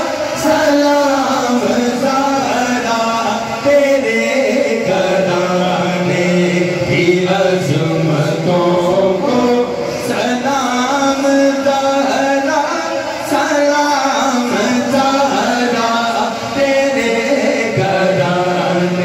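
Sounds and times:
man chanting low drone: 0.0 - 19.0
man singing into a microphone: 0.0 - 19.0.

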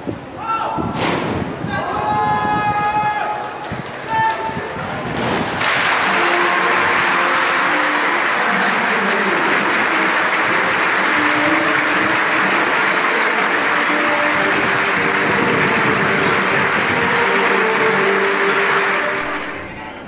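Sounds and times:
large crowd applauding: 5.4 - 19.8.

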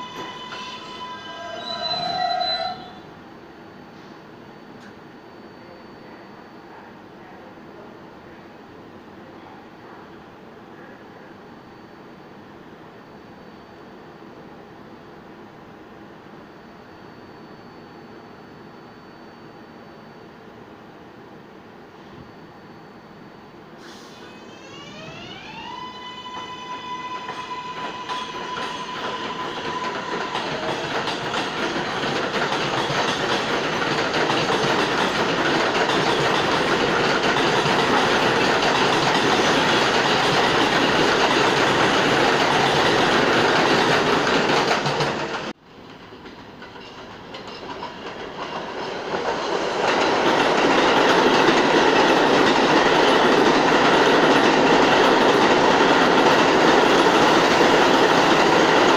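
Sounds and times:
train motor whine: 0.0 - 3.2, 23.8 - 45.5
train rumble and wheel clatter: 0.0 - 5.2, 23.7 - 58.9.

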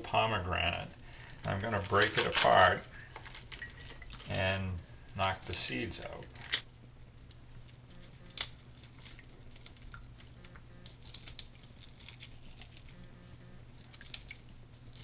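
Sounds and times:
steady low hum: 0.0 - 15.0
pomegranate crackling and tapping: 6.2 - 15.0.

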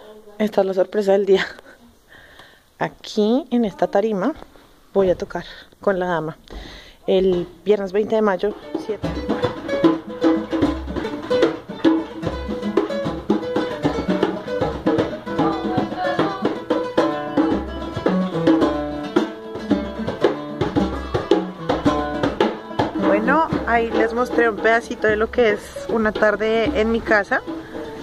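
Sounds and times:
hand drum played by hand: 7.2 - 28.0
plucked string melody: 8.2 - 28.0.

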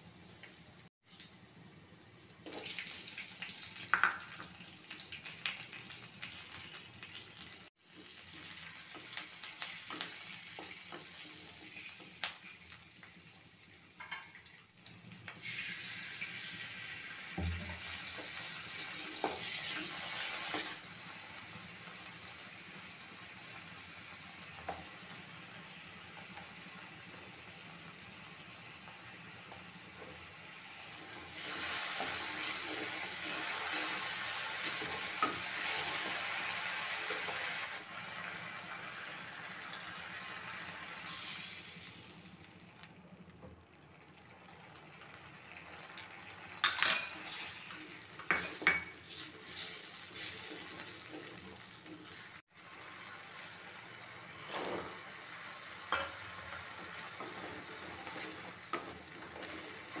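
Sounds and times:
sauce sizzling in hot oil: 0.0 - 60.0
wooden spatula scraping a pan: 47.0 - 52.4, 54.4 - 55.0, 56.5 - 60.0.

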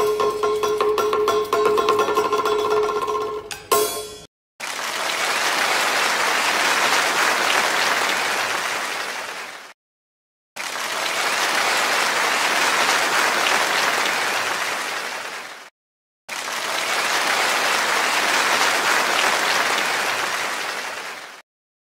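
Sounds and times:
audience applause: 4.6 - 9.8, 10.6 - 15.7, 16.3 - 21.4.

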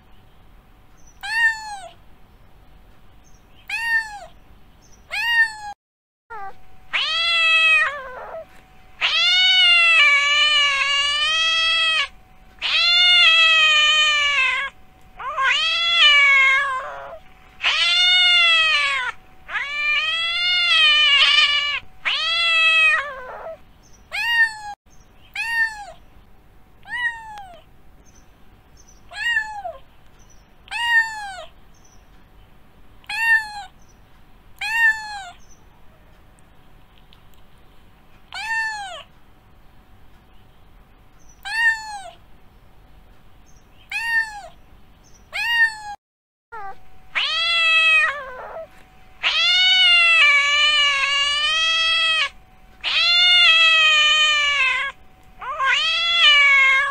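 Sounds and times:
cat meowing: 1.2 - 2.0, 3.6 - 4.4, 5.1 - 26.0, 26.8 - 27.7, 29.1 - 29.8, 30.7 - 31.5, 33.0 - 33.7, 34.6 - 35.4, 38.3 - 39.1, 41.4 - 42.2, 43.9 - 44.6, 45.3 - 56.9.

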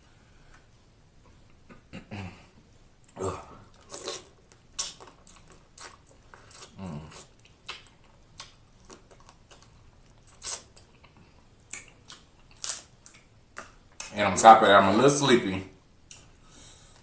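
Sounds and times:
chewing and sucking crab meat: 3.0 - 14.2.

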